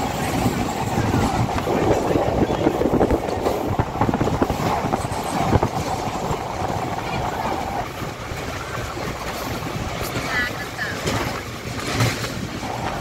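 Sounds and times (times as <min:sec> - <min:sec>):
train clanks: 0:00.0 - 0:13.0
train wheels rumbling and rattling: 0:00.0 - 0:13.0.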